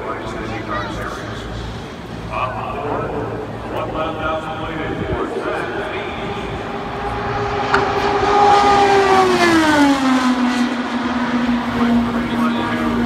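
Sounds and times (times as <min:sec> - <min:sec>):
race car passing by: 0:05.7 - 0:13.0.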